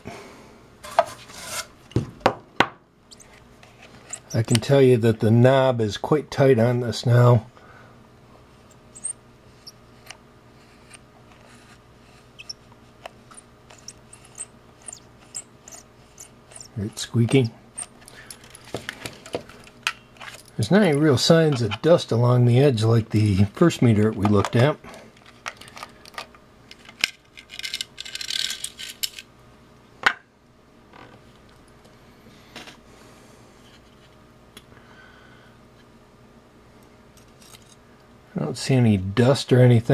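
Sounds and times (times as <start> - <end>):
rotary switch squeaking: 8.7 - 9.8, 12.3 - 12.6, 13.3 - 18.0.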